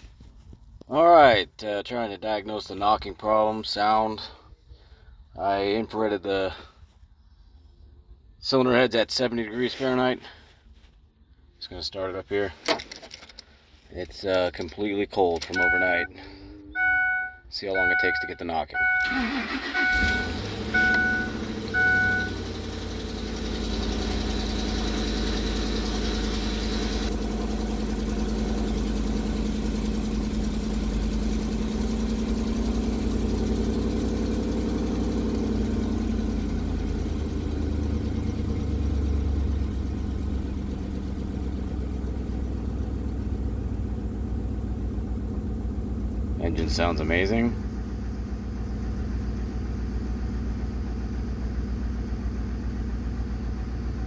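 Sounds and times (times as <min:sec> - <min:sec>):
truck engine starting and idling: 0:12.0 - 0:54.0
high engine whine: 0:14.1 - 0:54.0
warning chime beeping: 0:15.4 - 0:22.4.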